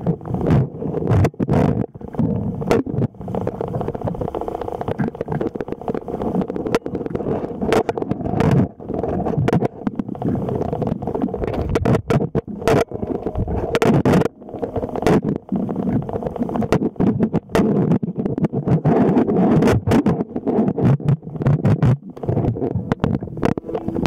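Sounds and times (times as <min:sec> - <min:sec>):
underwater clicks and knocks: 0:00.0 - 0:24.0
underwater rumble: 0:00.0 - 0:24.0.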